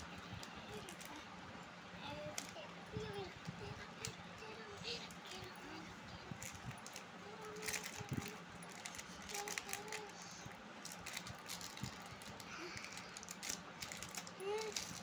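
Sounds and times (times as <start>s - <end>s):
plastic wrapper crinkling and tearing: 6.4s - 10.2s, 10.8s - 15.0s.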